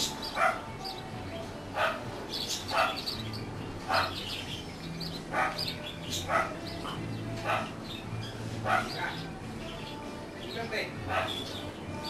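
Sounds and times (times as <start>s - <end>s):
birds chirping faintly: 0.0s - 12.0s
dog barking: 0.4s - 0.7s, 1.8s - 2.1s, 2.7s - 3.1s, 3.9s - 4.2s, 5.3s - 6.6s, 7.4s - 7.8s, 8.6s - 9.2s, 11.1s - 11.5s.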